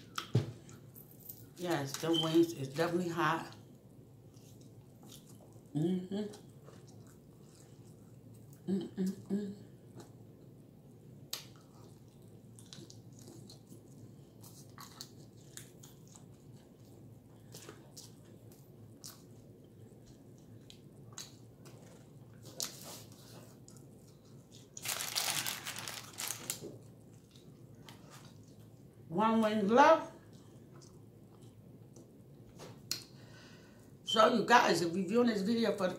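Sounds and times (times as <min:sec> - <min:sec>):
chewing with mouth clicks: 0:03.5 - 0:05.7, 0:06.3 - 0:10.6, 0:11.2 - 0:24.9, 0:26.7 - 0:29.0, 0:30.2 - 0:33.2
paper wrapping rustling: 0:24.8 - 0:26.6.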